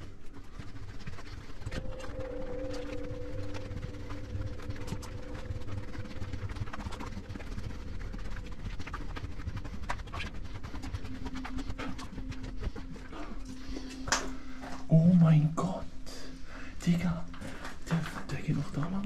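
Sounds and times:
steady low hum: 0.0s - 19.0s
running footsteps on concrete: 0.2s - 14.9s.

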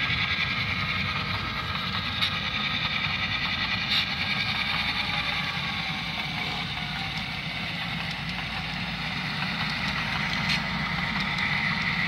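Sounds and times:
model train diesel engine drone: 0.0s - 12.0s.

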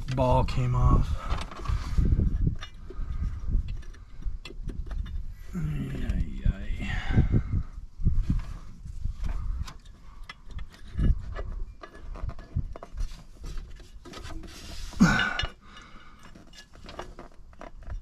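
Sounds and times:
metal and plastic parts clicking: 9.6s - 14.6s.

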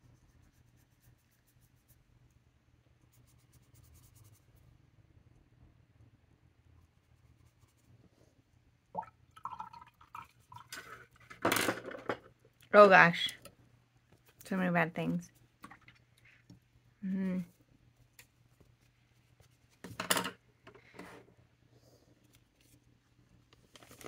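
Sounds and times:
paintbrush scratching on paper: 0.0s - 2.3s, 3.0s - 4.7s, 6.8s - 8.2s, 18.7s - 19.8s.

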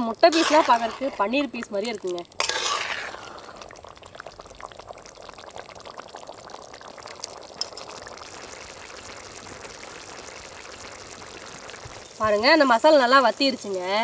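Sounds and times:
sauce bubbling in a pot: 0.0s - 14.0s
ladle scraping in sauce: 0.2s - 1.6s, 2.3s - 3.7s.

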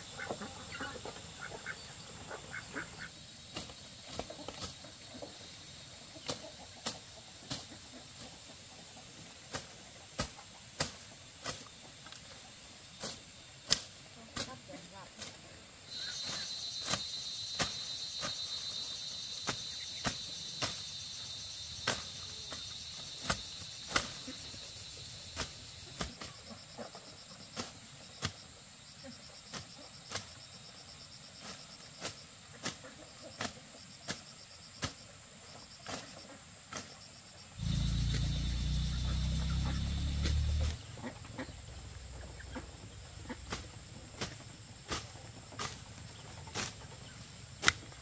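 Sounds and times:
insects trilling: 0.0s - 48.0s
loud low droning: 37.6s - 43.8s.

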